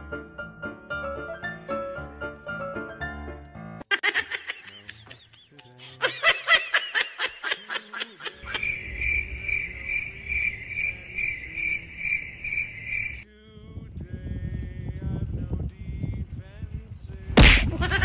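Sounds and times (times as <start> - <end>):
high-pitched giggling: 3.9 - 8.7, 17.6 - 18.0
crickets chirping: 8.4 - 13.2
low hum: 8.4 - 15.4.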